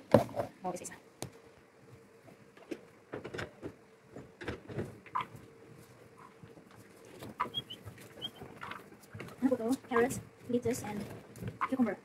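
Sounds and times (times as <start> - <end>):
guinea pigs squeaking: 5.1 - 5.4, 7.2 - 10.2.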